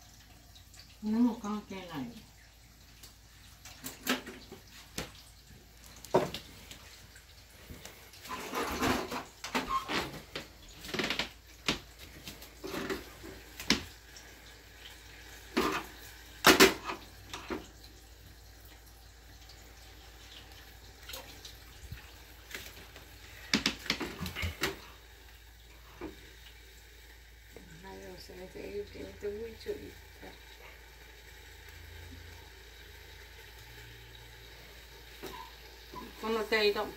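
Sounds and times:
water splashing at a sink: 0.0 - 36.9
dishes and utensils clattering: 8.3 - 10.3, 15.5 - 17.6.

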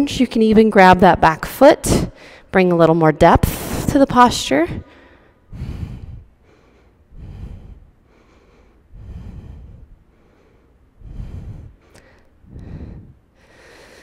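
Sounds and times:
woman breathing deeply: 1.9 - 2.5, 4.7 - 14.0.

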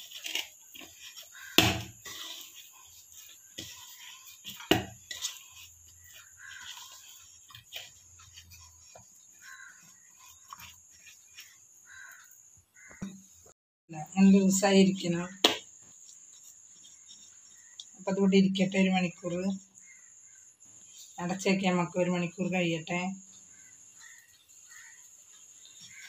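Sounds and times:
hand kneading dough: 0.0 - 13.4, 14.3 - 18.1.

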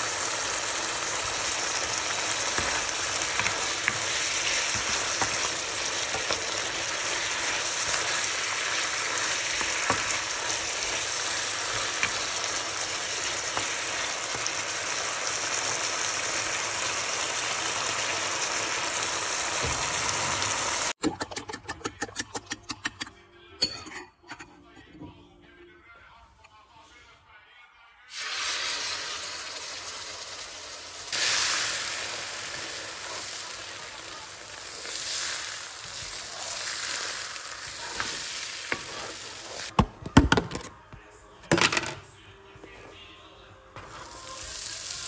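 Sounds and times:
food sizzling in hot oil: 0.0 - 21.0, 28.1 - 39.7, 43.8 - 45.0.

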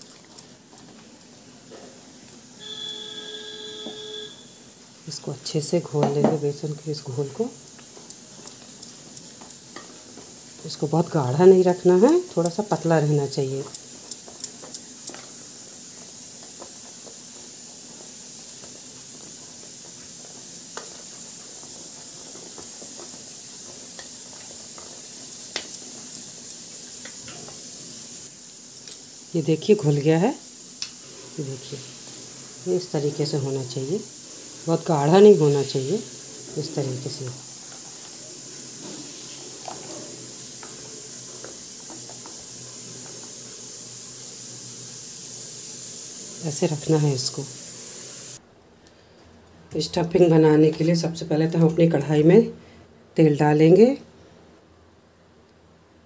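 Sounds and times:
steady hiss: 0.0 - 56.0
whisk swishing batter: 7.0 - 27.5
spoon stirring in steel bowl: 7.6 - 27.7, 34.4 - 43.5.

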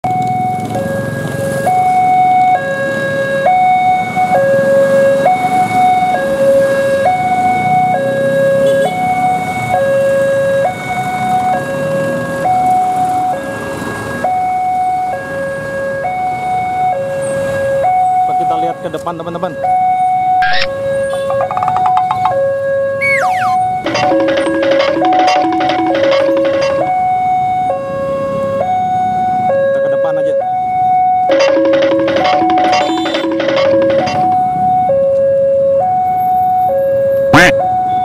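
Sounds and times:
two-tone level crossing alarm: 19.6 - 29.8, 30.4 - 38.0.

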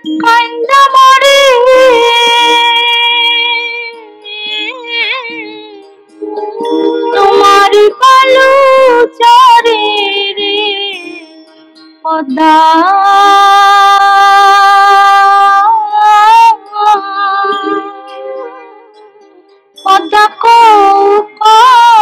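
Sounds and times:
folk song melody: 4.7 - 11.2.

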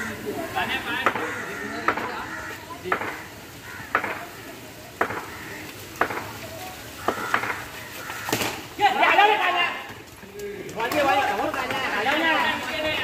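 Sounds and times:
sharp taps: 2.9 - 3.2, 3.9 - 4.2, 5.0 - 5.3, 6.0 - 6.4.

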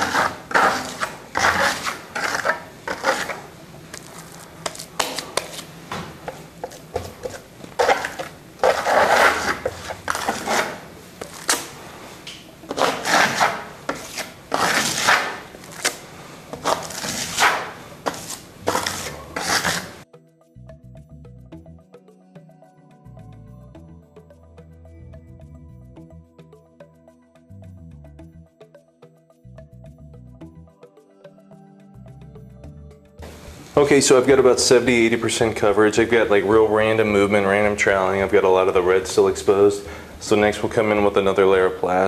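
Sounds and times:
trowel scraping plaster on wall: 0.0 - 11.8, 12.7 - 20.0.

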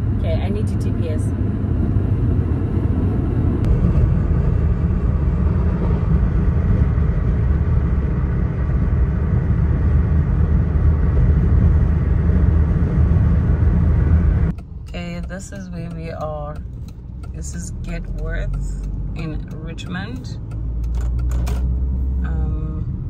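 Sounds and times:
car road and engine rumble: 0.0 - 23.0.

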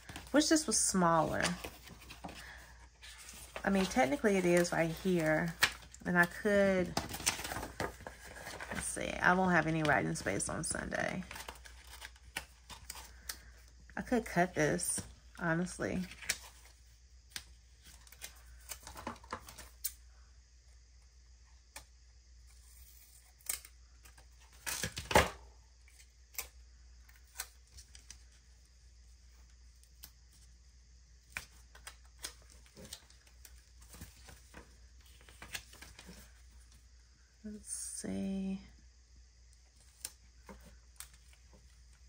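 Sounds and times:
paper rustling and clicks: 3.1 - 8.8.

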